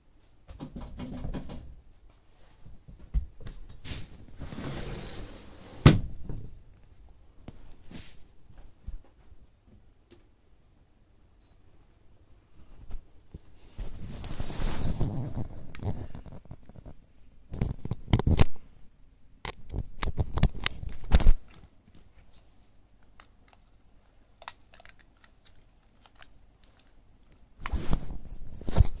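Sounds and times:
device rubbing against fabric: 13.7 - 17.0, 27.6 - 29.0.

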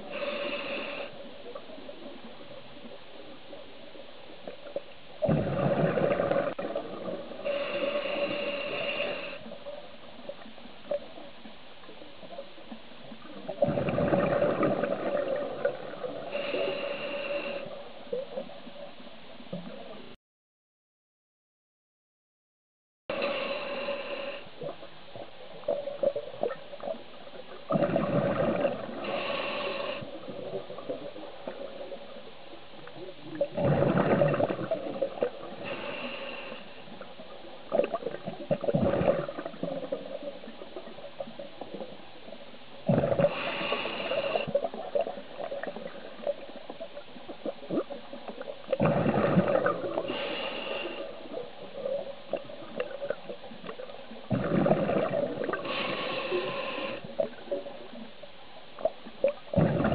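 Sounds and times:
diver breathing through regulator: 0.0 - 1.3, 7.4 - 9.6, 15.1 - 17.8, 23.1 - 24.6, 27.8 - 30.3, 35.4 - 37.0, 42.9 - 44.6, 48.8 - 51.4, 54.3 - 57.3
faint steady hum: 0.0 - 20.2, 23.1 - 59.9
exhaust bubbling underwater: 5.2 - 7.3, 13.5 - 16.2, 27.7 - 29.1, 33.2 - 35.5, 37.7 - 40.9, 42.9 - 43.4, 47.4 - 50.2, 54.2 - 55.9, 59.3 - 59.9.

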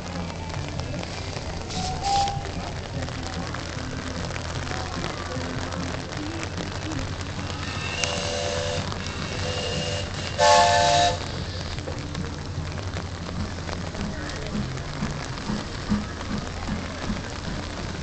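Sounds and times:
rain hissing: 0.0 - 18.0
train rumbling: 0.0 - 18.0
steam locomotive whistle: 1.7 - 2.5, 7.6 - 11.4.

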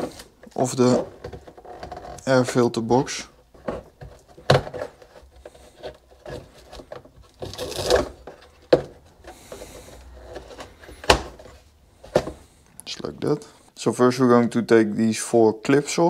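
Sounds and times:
rubber boot scraping plastic: 0.0 - 12.6.

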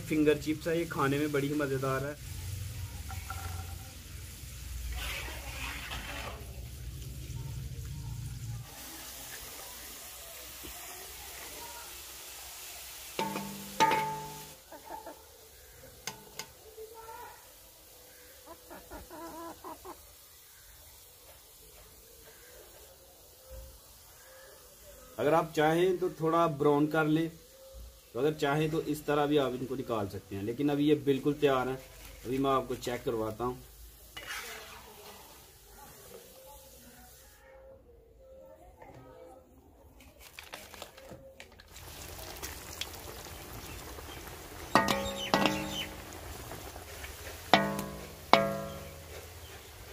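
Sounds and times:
chips deep-frying in oil: 0.0 - 37.4, 40.0 - 49.9
chicken clucking: 14.6 - 15.4, 18.4 - 20.1
plucked-string music: 47.6 - 49.2.

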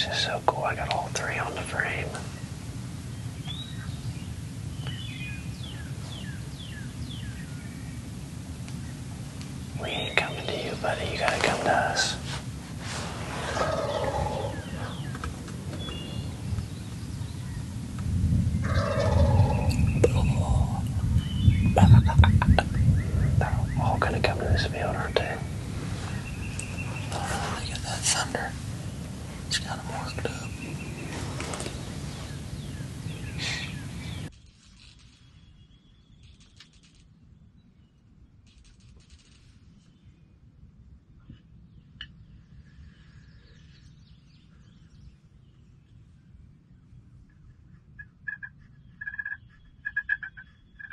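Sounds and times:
low rumble: 0.0 - 34.5
outdoor hiss: 0.0 - 35.4
songbirds chirping: 0.0 - 50.9
turkeys gobbling: 48.0 - 50.9.

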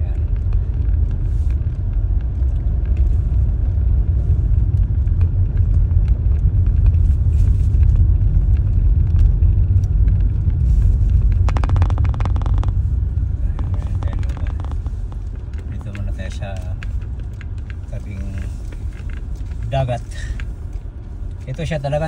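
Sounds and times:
car driving heard from inside: 0.0 - 22.0
rapid clicks: 8.5 - 19.2.

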